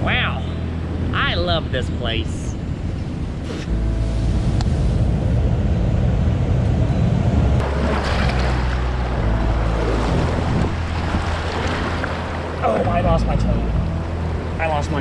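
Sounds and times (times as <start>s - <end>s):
heavy low rumble: 0.0s - 15.0s
surf washing over rock: 7.6s - 13.2s
water sloshing: 7.6s - 14.6s.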